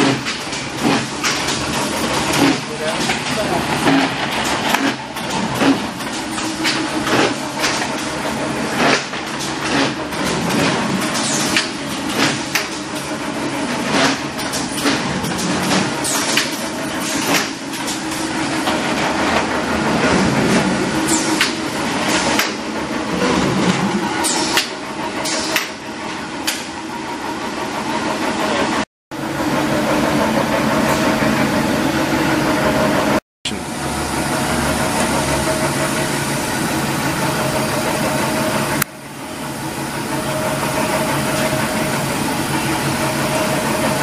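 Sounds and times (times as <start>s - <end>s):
sharp machine clacks: 0.0s - 20.2s, 21.0s - 23.2s, 24.2s - 26.8s
steady machine hum: 0.0s - 44.0s.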